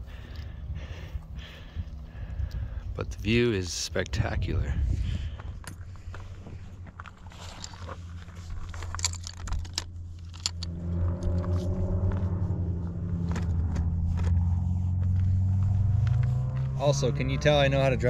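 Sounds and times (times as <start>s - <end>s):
vehicle engine rumble: 0.0s - 18.0s
folding camp chair clicks and rustles: 5.5s - 10.7s.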